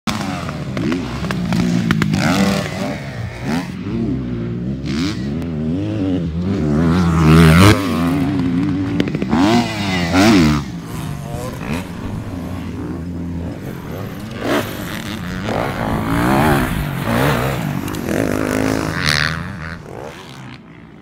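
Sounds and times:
dirt bike engine revving: 0.1 - 21.0.

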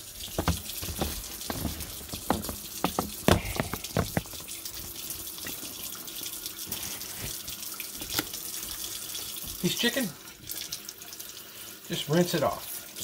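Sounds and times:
faucet water running: 0.0 - 13.0
sharp knocks: 0.3 - 4.5.

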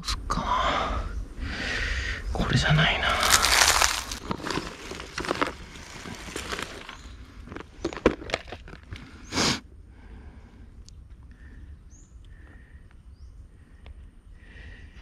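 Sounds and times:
plastic rush: 3.1 - 8.8.

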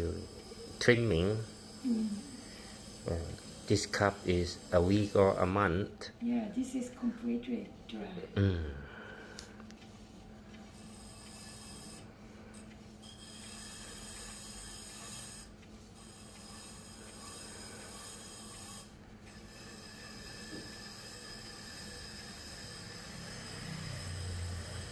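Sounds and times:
tool scraping dry clay: 0.0 - 5.7, 10.8 - 12.0, 13.0 - 24.9
pottery wheel humming: 0.0 - 24.9.

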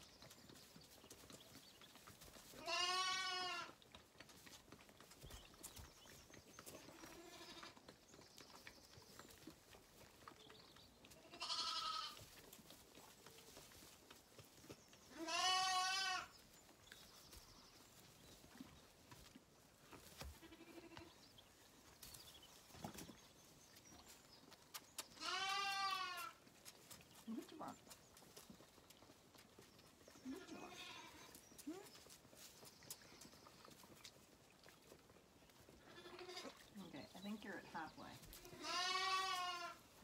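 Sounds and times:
lambs bleating: 2.6 - 3.8, 6.8 - 7.8, 11.1 - 12.2, 15.1 - 16.3, 20.4 - 21.1, 25.2 - 26.4, 30.3 - 31.3, 35.8 - 36.6, 38.3 - 39.8.

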